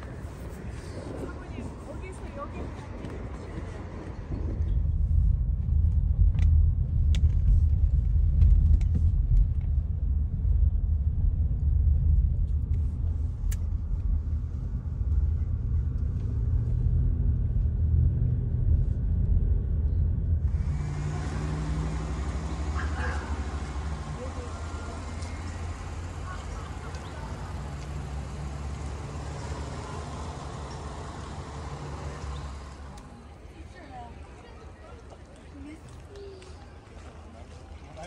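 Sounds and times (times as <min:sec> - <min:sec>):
car driving in rain: 0:20.5 - 0:33.0.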